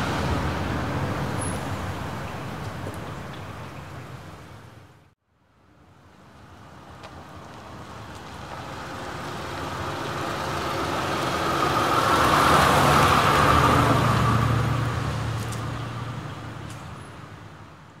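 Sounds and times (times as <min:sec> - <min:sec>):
vehicle passing by: 0:08.4 - 0:16.3.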